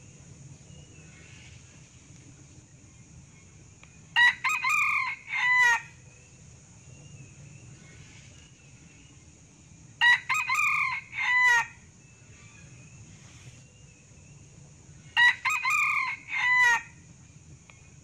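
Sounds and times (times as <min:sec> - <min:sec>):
rooster crowing: 0:04.2 - 0:06.0, 0:10.0 - 0:11.8, 0:15.2 - 0:17.0.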